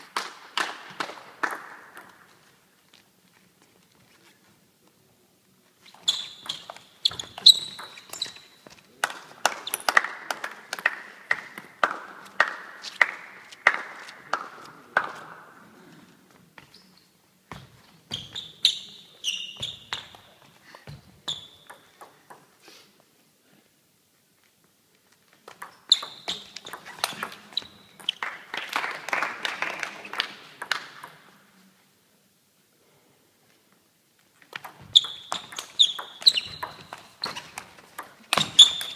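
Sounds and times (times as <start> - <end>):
table tennis ball bouncing: 6.4 - 8.8, 20.9 - 22.5, 25.4 - 28.5, 34.5 - 38.9
table tennis ball hits: 21.4 - 22.5, 25.4 - 28.5, 34.5 - 38.9
table tennis ball clicking: 25.5 - 28.2.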